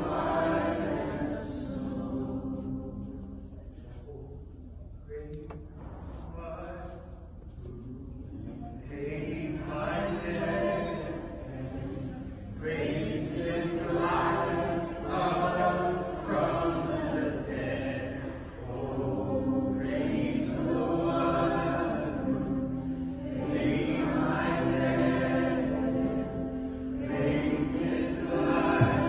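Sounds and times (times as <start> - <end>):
congregation singing worship song: 0.0 - 4.0, 5.4 - 29.0.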